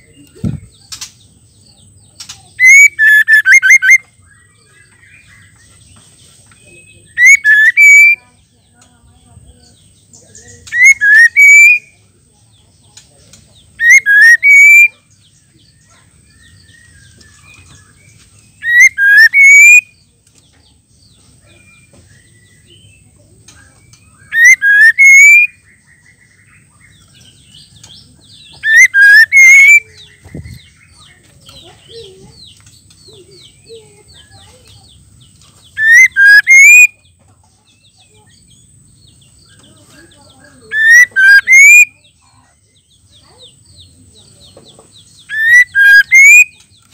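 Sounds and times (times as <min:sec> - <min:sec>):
bird whistling call: 0:02.6 - 0:04.1, 0:07.2 - 0:08.2, 0:10.7 - 0:11.9, 0:13.8 - 0:15.0, 0:18.6 - 0:19.9, 0:24.2 - 0:25.6, 0:28.4 - 0:30.1, 0:35.8 - 0:37.0, 0:40.6 - 0:42.1, 0:45.2 - 0:46.7.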